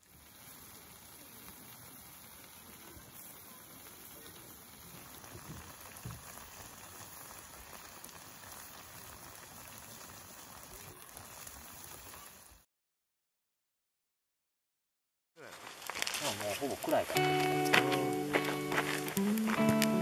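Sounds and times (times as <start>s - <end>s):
hotpot bubbling: 0.0s - 12.6s.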